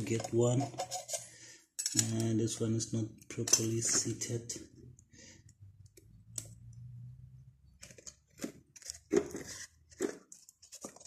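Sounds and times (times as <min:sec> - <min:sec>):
light metallic clicks and scrapes: 0:00.0 - 0:02.4.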